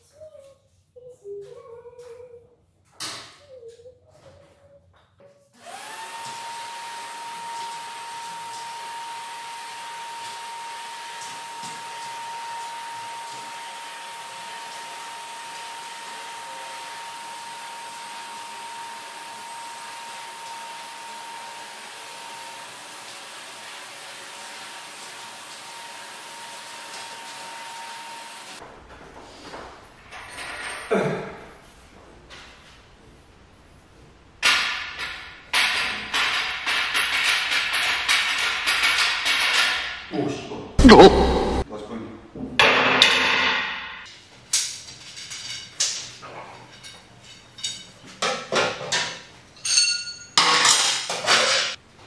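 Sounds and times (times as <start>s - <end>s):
shop vacuum running with high whine: 5.6s - 28.6s.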